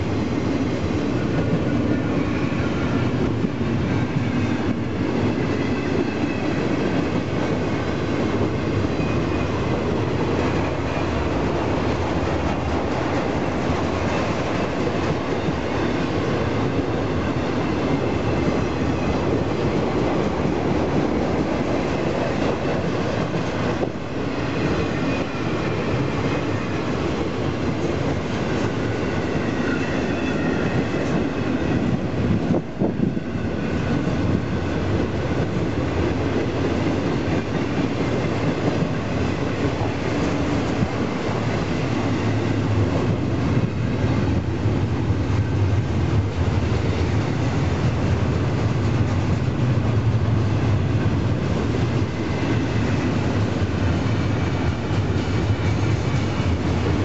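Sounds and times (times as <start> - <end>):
train wheels rumbling on rail: 0.0 - 57.0.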